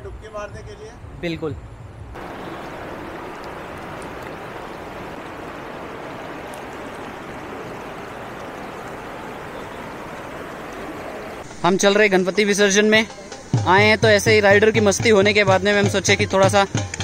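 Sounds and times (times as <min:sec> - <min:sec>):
river water rushing: 0:02.2 - 0:11.9.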